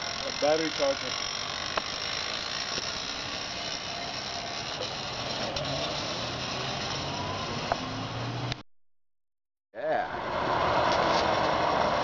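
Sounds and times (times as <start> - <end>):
electric motorcycle motor whine: 0.0 - 8.6.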